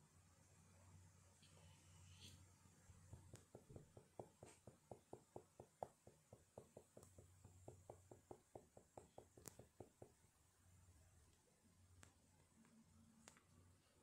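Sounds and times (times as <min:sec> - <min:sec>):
quick regular tapping: 0:03.1 - 0:10.2.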